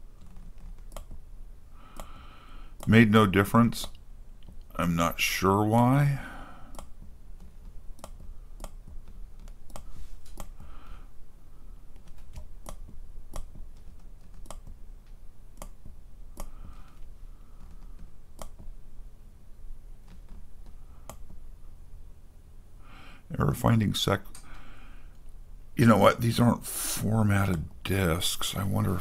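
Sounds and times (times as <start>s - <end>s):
computer keyboard key clicks: 12.0s - 14.8s.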